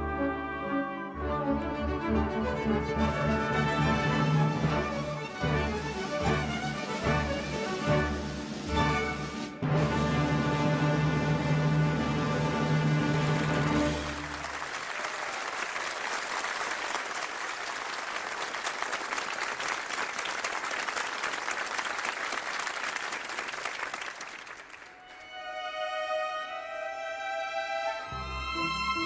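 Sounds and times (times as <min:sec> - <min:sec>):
audience clapping: 0:12.8 - 0:25.4.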